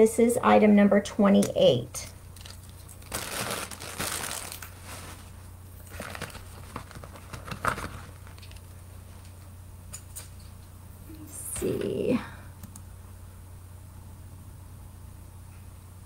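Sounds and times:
low steady hum: 0.0s - 16.0s
packaging crinkling and rustling: 2.2s - 9.4s.

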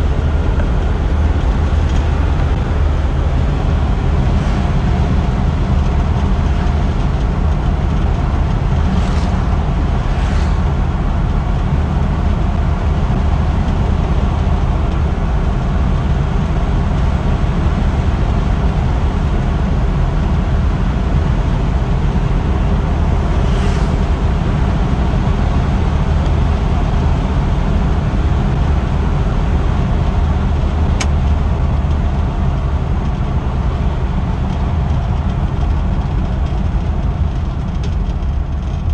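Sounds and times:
car engine and tyres droning: 0.0s - 38.9s
brief whooshes: 8.9s - 10.8s, 23.4s - 24.0s.

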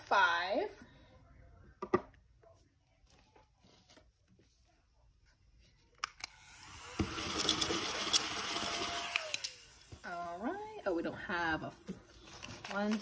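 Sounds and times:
banknotes rustling: 12.1s - 13.0s.

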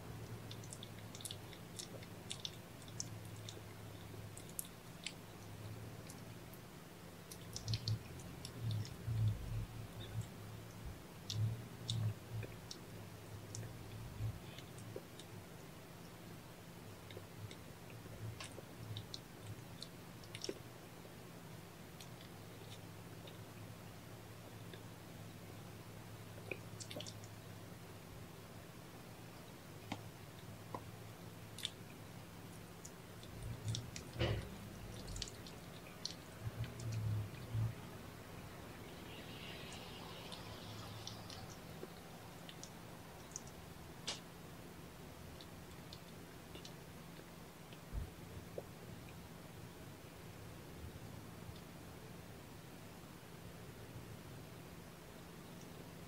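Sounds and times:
low room hum: 0.0s - 56.0s
cats licking and suckling: 0.1s - 28.7s, 29.6s - 38.0s, 38.8s - 49.4s
cats licking fur: 0.3s - 5.3s
low pulsing hum: 7.5s - 19.7s, 33.1s - 44.0s.

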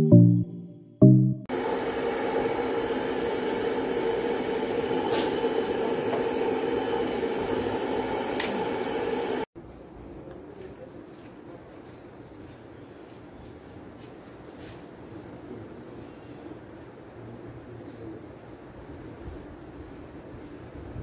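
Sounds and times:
machine hum: 1.0s - 9.5s.

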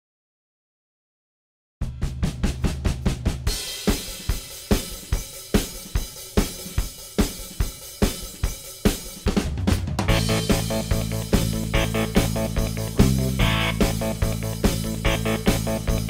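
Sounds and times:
rock drum kit beat: 1.8s - 16.0s
rock band playing: 9.8s - 16.0s.

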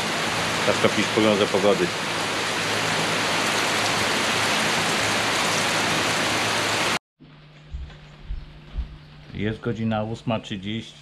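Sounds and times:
steady rain falling: 0.0s - 7.0s
faint low hum: 7.2s - 11.0s.

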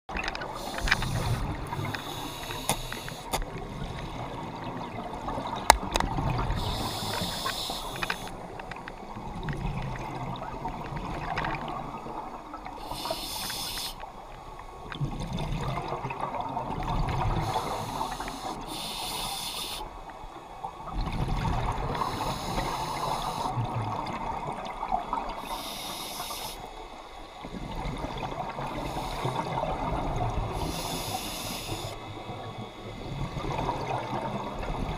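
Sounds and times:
regulator inhale hiss: 0.5s - 3.4s, 6.5s - 8.4s, 12.8s - 14.2s, 17.4s - 20.1s, 21.9s - 23.6s, 25.4s - 27.0s, 28.8s - 29.6s, 30.5s - 32.1s
exhale bubbling underwater: 14.9s - 18.4s, 20.8s - 25.8s, 27.4s - 34.9s.

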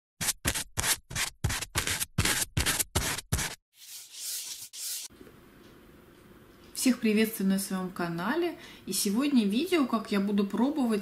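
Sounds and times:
short scratching strokes: 0.2s - 5.1s.

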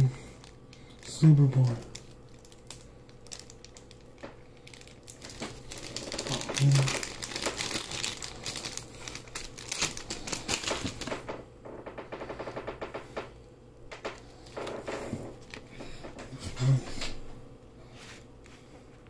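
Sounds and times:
plastic packaging crackling: 0.0s - 11.4s, 13.9s - 16.2s.

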